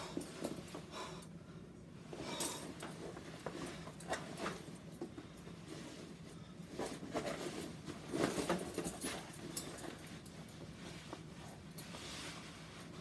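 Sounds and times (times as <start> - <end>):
canvas rustling and scraping: 5.5 - 13.0
buckles and metal rings clinking: 7.2 - 12.0.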